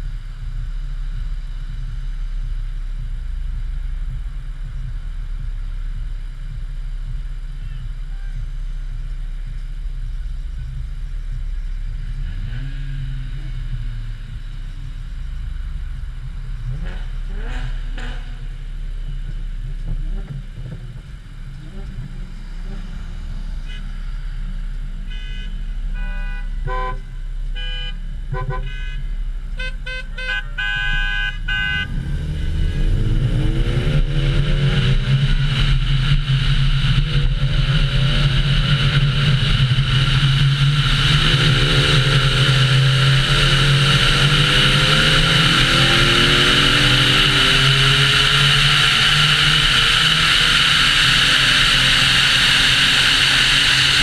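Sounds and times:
car engine accelerating: 0.0 - 54.0
car engine idling: 0.0 - 54.0
wind and road noise: 0.0 - 54.0.

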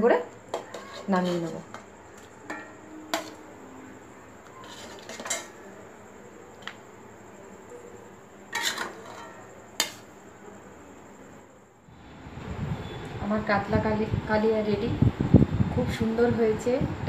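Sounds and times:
spatula scraping metal pan: 0.5 - 3.4, 4.4 - 5.6, 8.5 - 10.0
spatula clinking on ceramic plate: 4.6 - 5.6, 8.5 - 10.0.

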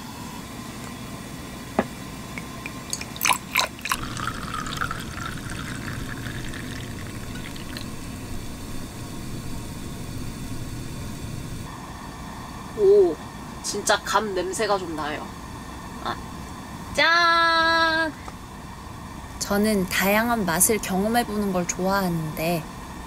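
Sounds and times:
liquor pouring into vessel: 2.4 - 8.8.

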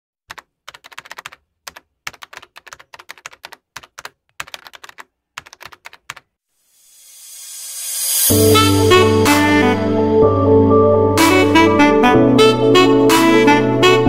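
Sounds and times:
keyboard key clicks: 0.3 - 6.2.

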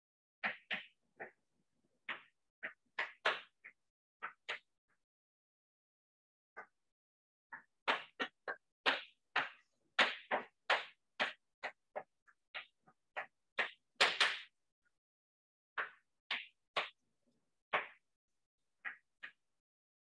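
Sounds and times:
chalk tapping and scraping on blackboard: 0.4 - 4.8, 7.5 - 14.6.

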